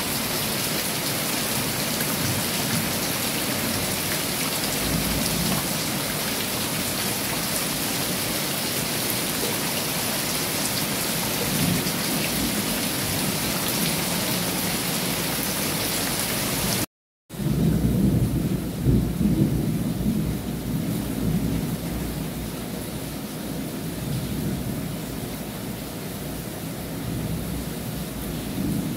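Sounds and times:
heavy rain on water and paving: 0:00.0 - 0:28.9
rumble of thunder: 0:04.7 - 0:05.8, 0:17.4 - 0:22.5, 0:23.5 - 0:25.1, 0:27.0 - 0:28.9.

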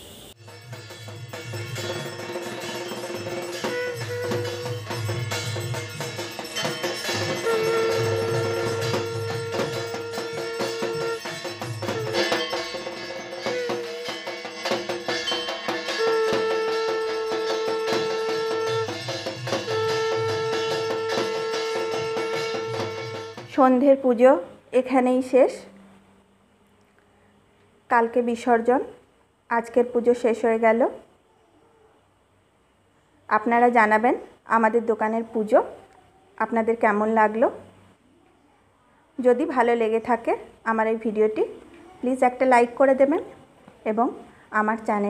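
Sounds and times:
bell strokes: 0:00.4 - 0:23.4
long held notes: 0:02.1 - 0:05.2, 0:07.0 - 0:14.4, 0:15.9 - 0:23.4.

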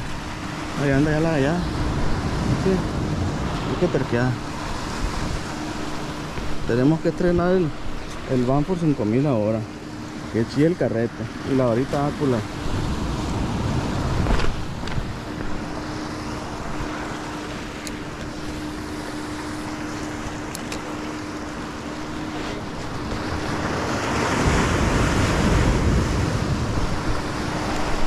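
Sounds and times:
wind on microphone: 0:00.0 - 0:09.2, 0:11.2 - 0:17.4, 0:22.2 - 0:28.0
waves washing over rocks: 0:00.0 - 0:28.0
light clicks: 0:20.5 - 0:20.9.

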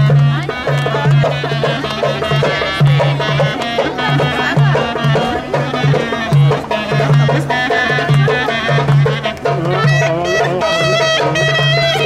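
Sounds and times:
clarinet fast melody: 0:00.0 - 0:12.0.

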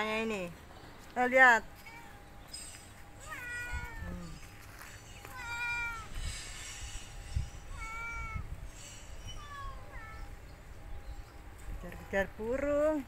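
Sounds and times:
cat meowing: 0:03.2 - 0:04.5, 0:05.2 - 0:06.2, 0:07.7 - 0:08.5, 0:09.3 - 0:10.4.

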